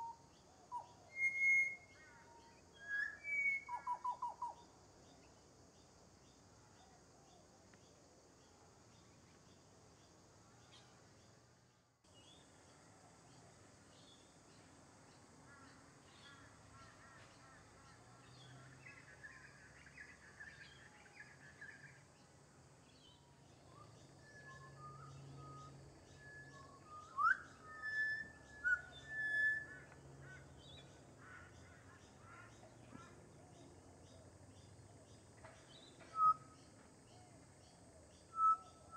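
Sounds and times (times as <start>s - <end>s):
bird singing whistled notes: 0.0s - 4.6s, 18.2s - 22.1s, 22.9s - 30.9s, 35.7s - 37.3s, 38.1s - 38.9s.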